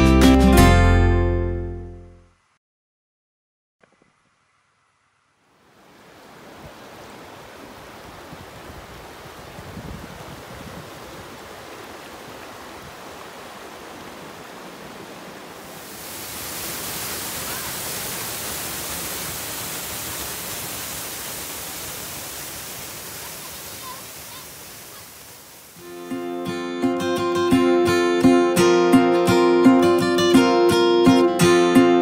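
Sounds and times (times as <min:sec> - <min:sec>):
waterfall roaring: 0:05.5 - 0:26.1
river rushing over rocks: 0:05.7 - 0:25.9.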